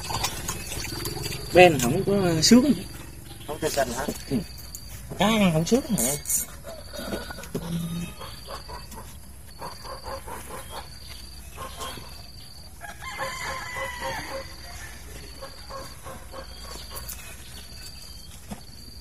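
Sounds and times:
rooster crowing: 0:06.5 - 0:08.8, 0:12.7 - 0:15.9.

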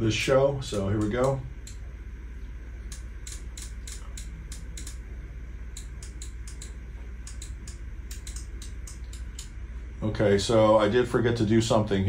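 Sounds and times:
amplifier hum: 0:00.0 - 0:12.0
sharp clicks: 0:01.0 - 0:01.8, 0:02.9 - 0:05.0, 0:05.7 - 0:09.6.

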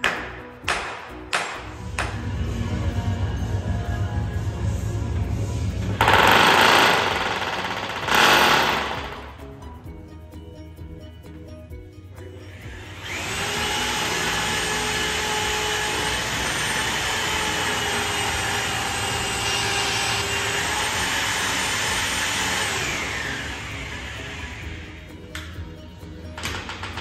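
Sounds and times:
hammer drill boring into stone: 0:06.0 - 0:09.4, 0:12.6 - 0:25.0.

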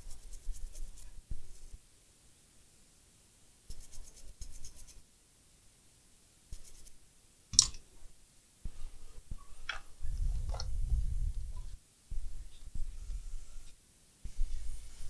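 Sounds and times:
scratching and rubbing strokes: 0:00.0 - 0:01.8, 0:03.7 - 0:05.0, 0:06.5 - 0:07.0, 0:10.3 - 0:15.0.

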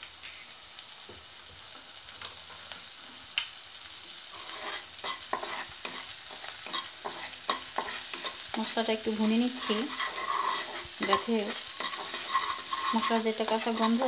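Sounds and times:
paste sizzling in hot oil: 0:00.0 - 0:14.0
plastic spatula scraping a pan: 0:04.4 - 0:05.7, 0:09.6 - 0:14.0.

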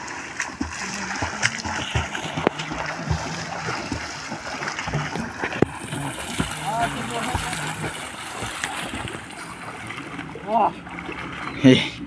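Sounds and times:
water splashing from swimmers: 0:00.0 - 0:12.0.

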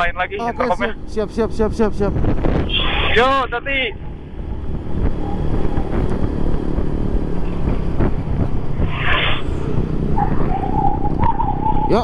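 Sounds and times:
wind rumble on microphone: 0:00.9 - 0:12.0
motorcycle engine running: 0:03.9 - 0:10.2.

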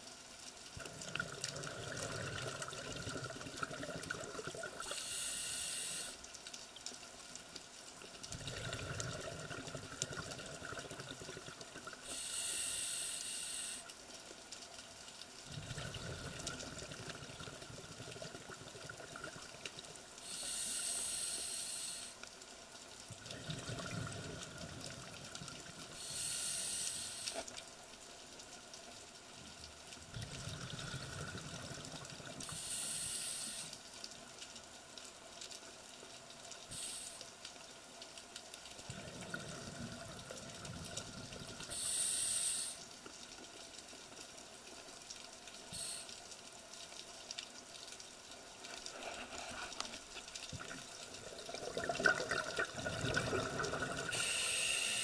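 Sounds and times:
exhaled bubbles rumbling: 0:00.8 - 0:04.8, 0:08.3 - 0:12.0, 0:15.5 - 0:19.6, 0:23.1 - 0:25.8, 0:30.1 - 0:32.5, 0:38.9 - 0:41.7, 0:50.5 - 0:54.2
regulator inhale hiss: 0:04.8 - 0:06.3, 0:12.0 - 0:14.0, 0:20.2 - 0:22.3, 0:25.9 - 0:27.5, 0:32.4 - 0:33.8, 0:36.6 - 0:37.4, 0:41.6 - 0:42.9, 0:45.7 - 0:46.2, 0:53.7 - 0:55.0.

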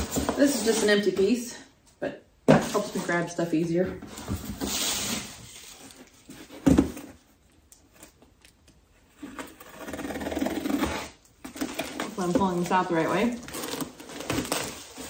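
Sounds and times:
cardboard rustling and sliding: 0:00.0 - 0:01.4, 0:03.9 - 0:07.3
packing tape being cut: 0:09.2 - 0:12.1.

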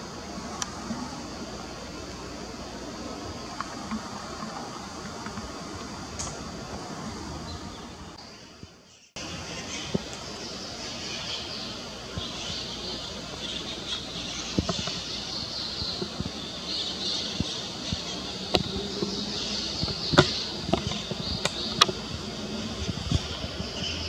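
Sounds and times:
small birds chirping: 0:07.3 - 0:24.0.

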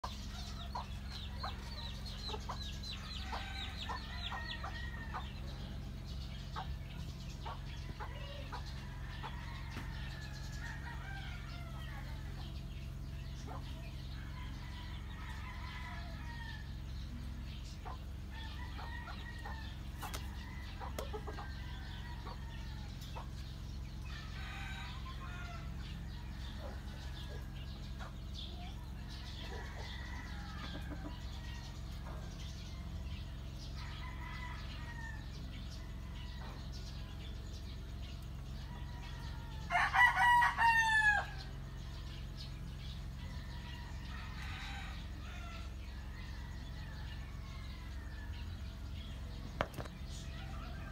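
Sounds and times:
steady low hum: 0:00.0 - 0:50.9
rooster crowing: 0:07.7 - 0:12.3, 0:14.2 - 0:16.8, 0:24.1 - 0:27.6, 0:28.7 - 0:31.8, 0:33.7 - 0:37.0, 0:38.6 - 0:41.5, 0:43.2 - 0:48.8.

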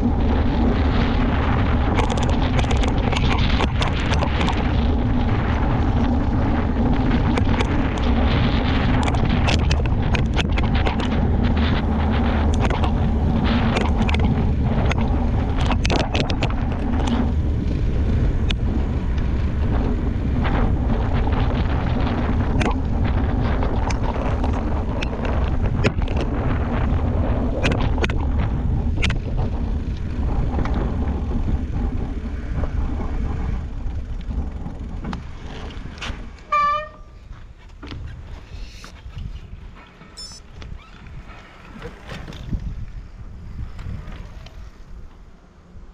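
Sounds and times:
bike rattling and clicking: 0:00.0 - 0:45.9
bike tyre rumble: 0:00.0 - 0:45.9
wind rushing: 0:00.0 - 0:45.9.

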